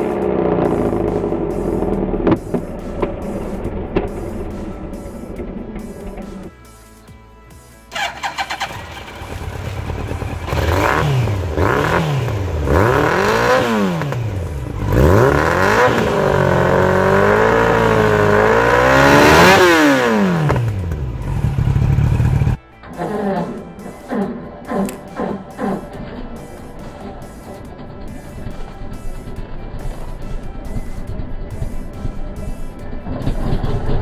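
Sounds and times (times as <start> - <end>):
motorcycle engine revving: 0.0 - 6.7, 7.9 - 26.3, 33.0 - 34.0.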